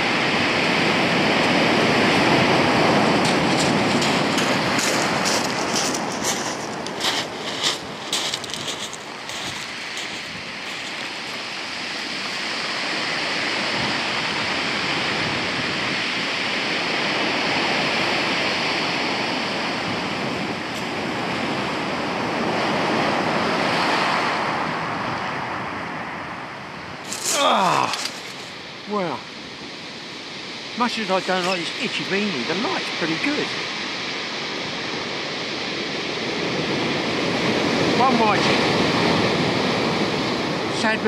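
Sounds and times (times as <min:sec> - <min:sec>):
surf breaking on shingle: 0:02.2 - 0:11.4, 0:27.1 - 0:28.6.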